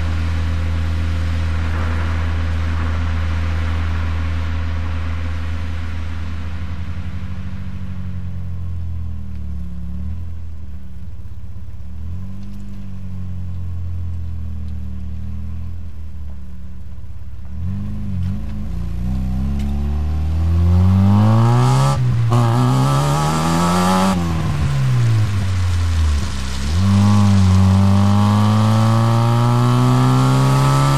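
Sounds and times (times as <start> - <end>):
car engine idling and revving: 0.0 - 30.9.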